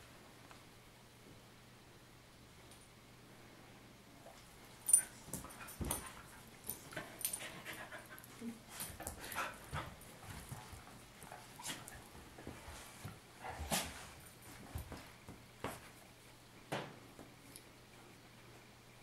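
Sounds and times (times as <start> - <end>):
dogs play-fighting noises: 4.2 - 16.3.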